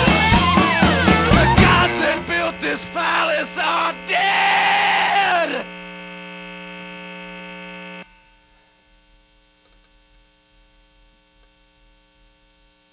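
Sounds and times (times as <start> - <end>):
rock band final note: 0.0 - 5.6
amplifier hum: 0.0 - 12.9.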